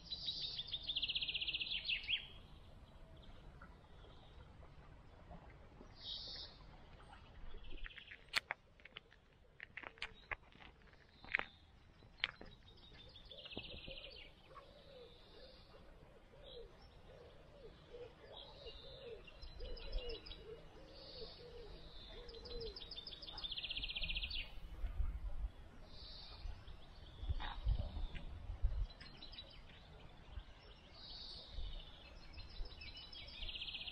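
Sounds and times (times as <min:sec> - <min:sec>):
songbirds singing: 0:00.0 - 0:33.9
wind rumble on microphone: 0:23.8 - 0:30.7.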